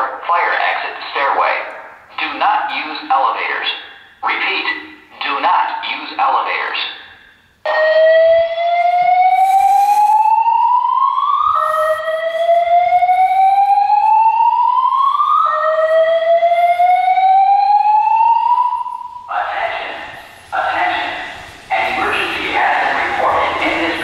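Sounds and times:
fire alarm whoop tone: 7.6 - 19.3.

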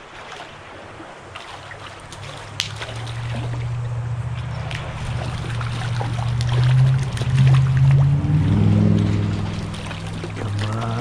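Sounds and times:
stream water rippling: 0.0 - 11.0
sharp splash clicks: 1.3 - 11.0
fish thrashing at surface: 1.4 - 11.0
low drone: 2.2 - 11.0.

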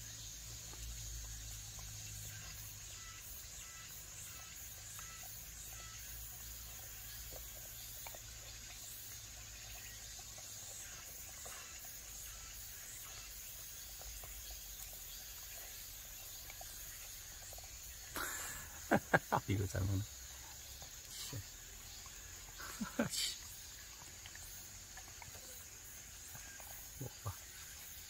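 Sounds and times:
insects chirring: 0.0 - 28.0
dogs licking and chewing: 6.3 - 28.0.

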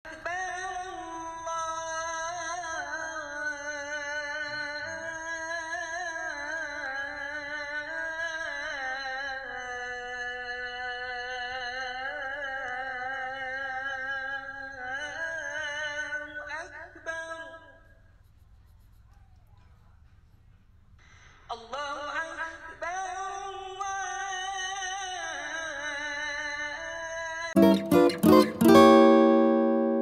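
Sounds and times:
person singing ornamented notes: 27.6 - 30.0.

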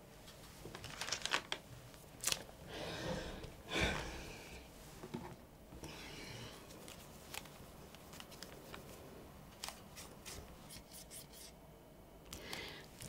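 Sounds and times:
tissue rustling on plastic: 0.5 - 1.6.

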